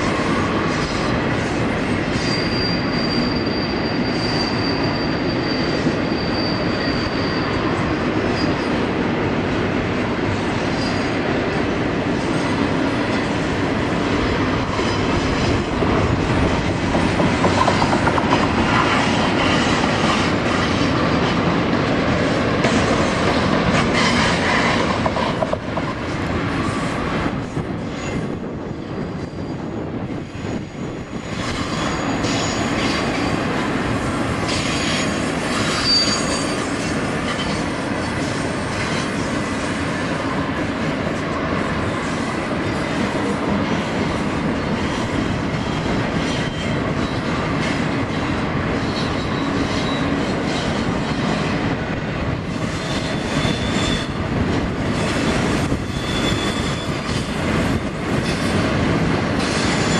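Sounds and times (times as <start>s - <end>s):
freight train rumble: 0.0s - 59.9s
thin wheel squeal: 2.2s - 7.6s, 30.8s - 33.0s, 34.5s - 36.7s, 55.8s - 57.0s.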